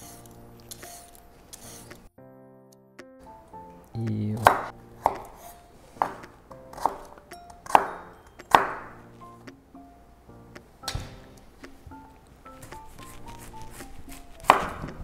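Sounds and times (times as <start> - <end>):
knife chopping on cutting board: 4.4 - 7.1, 7.7 - 8.9, 12.7 - 15.0.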